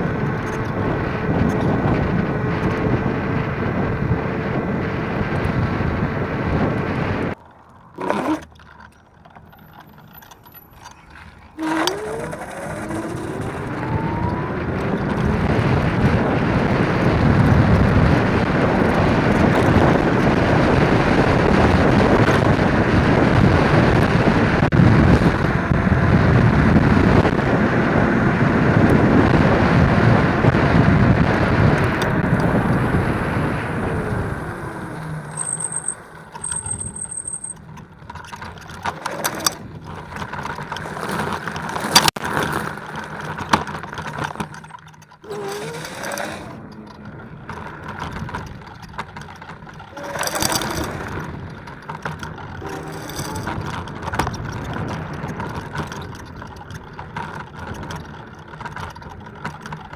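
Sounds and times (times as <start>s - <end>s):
wind buffeting microphone: 0.0s - 59.9s
clicks and rattles: 7.3s - 16.1s, 35.2s - 59.9s.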